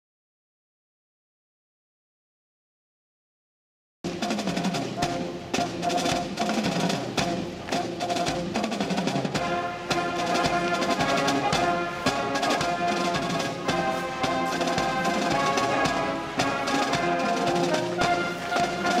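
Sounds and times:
brass band playing: 0:04.1 - 0:19.0
marching drumbeat: 0:04.1 - 0:19.0.

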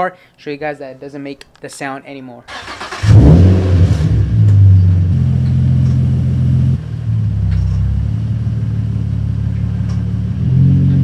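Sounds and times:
car engine starting and idling: 0:02.5 - 0:11.0.

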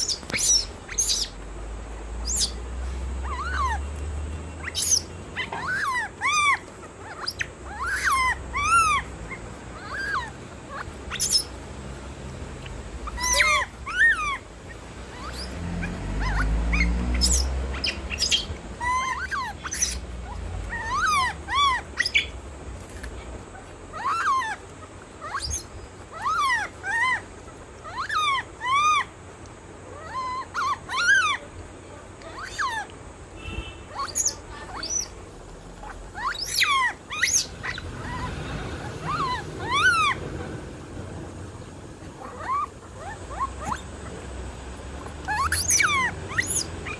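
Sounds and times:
high chirping animal calls: 0:00.0 - 0:11.7, 0:12.5 - 0:22.6, 0:23.4 - 0:46.9.

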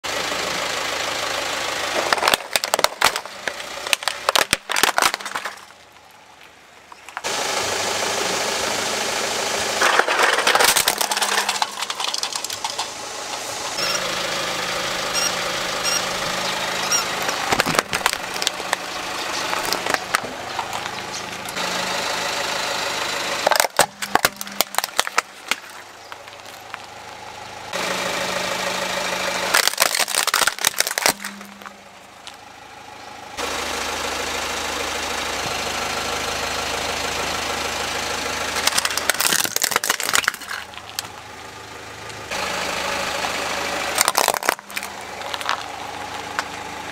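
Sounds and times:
car engine running: 0:00.0 - 0:46.9
tyre crushing plastic toys: 0:01.9 - 0:06.0, 0:09.8 - 0:13.0, 0:17.2 - 0:21.0, 0:23.4 - 0:26.8, 0:29.5 - 0:32.4, 0:38.6 - 0:41.2, 0:43.9 - 0:46.6.

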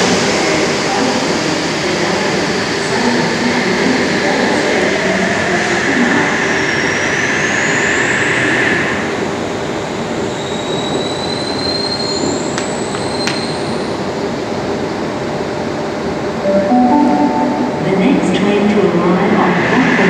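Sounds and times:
train wheels rumbling on rail: 0:00.0 - 0:15.9.

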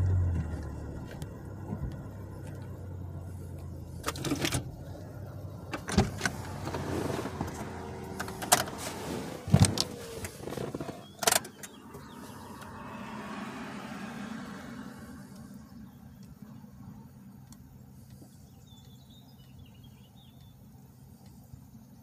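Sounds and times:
car engine idling: 0:00.0 - 0:22.0
clicks and knocks in car cabin: 0:05.6 - 0:12.2.

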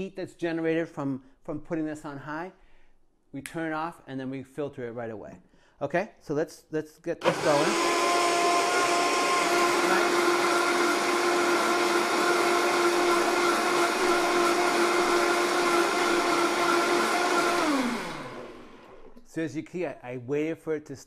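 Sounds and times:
blender motor whine: 0:07.2 - 0:19.2.

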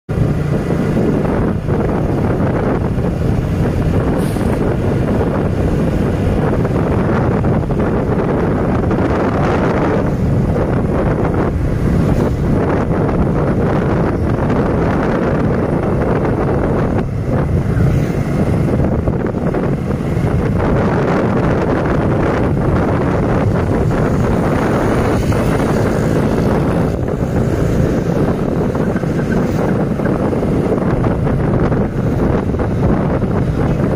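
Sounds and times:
motorcycle engine cruising: 0:00.1 - 0:33.9
wind rushing over microphone: 0:00.1 - 0:33.9.

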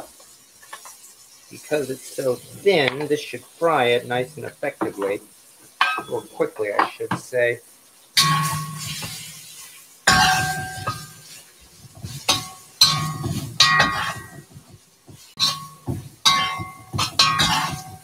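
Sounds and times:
meat stir-frying: 0:00.0 - 0:18.0
metal shovel clanging against wok: 0:08.2 - 0:09.3, 0:10.1 - 0:11.4, 0:12.1 - 0:14.5, 0:15.4 - 0:18.0.

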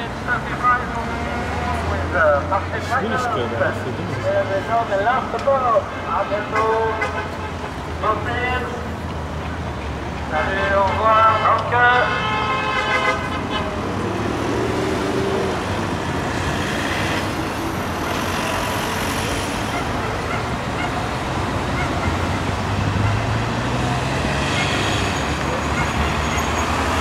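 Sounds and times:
crowd chatter: 0:00.0 - 0:06.4
passing vehicles: 0:00.0 - 0:27.0
vehicle horn toot: 0:10.7 - 0:13.8.

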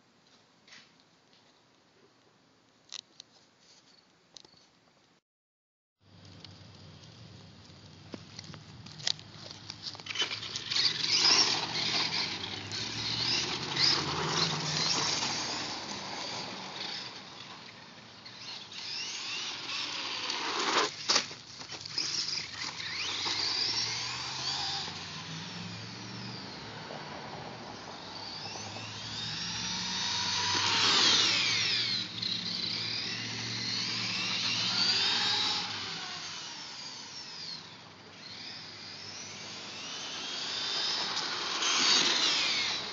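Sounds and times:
toy truck motor whining: 0:09.9 - 0:26.6, 0:27.8 - 0:42.9.

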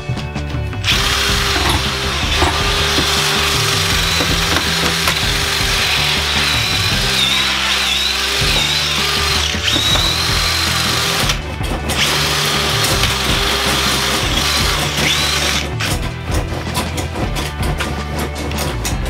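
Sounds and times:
cordless drill motor whine: 0:00.9 - 0:11.4, 0:12.0 - 0:15.6.

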